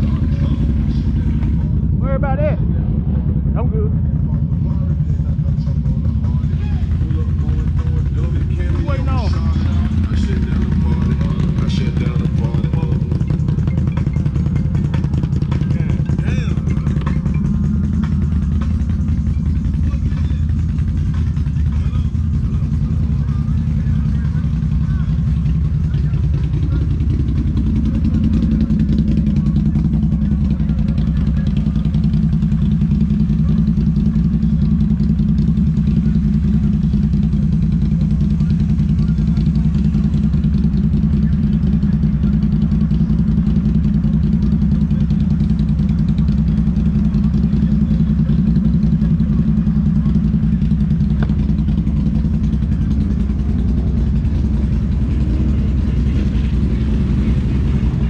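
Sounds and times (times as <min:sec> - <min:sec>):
atv engine running steadily: 0:00.0 - 0:58.0.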